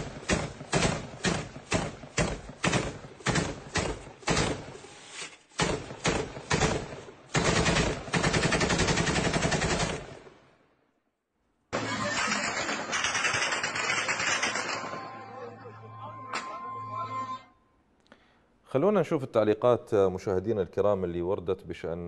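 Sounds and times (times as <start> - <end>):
automatic gunfire: 0.0 - 4.7, 5.6 - 10.2, 11.8 - 15.1.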